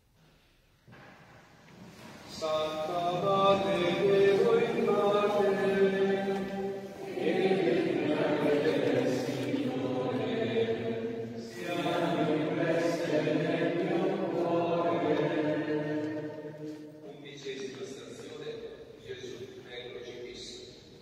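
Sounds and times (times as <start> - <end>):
group of voices chanting: 7.0 - 16.2.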